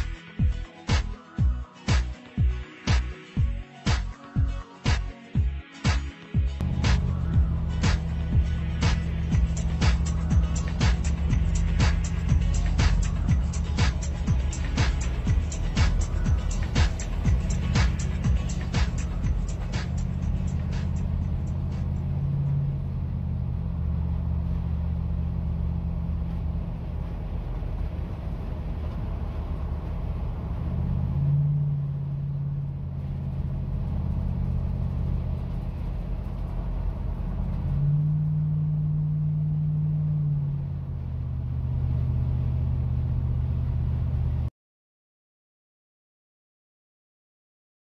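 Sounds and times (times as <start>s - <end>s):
tyres and engine rumble: 0.0s - 44.5s
low drone: 6.6s - 44.5s.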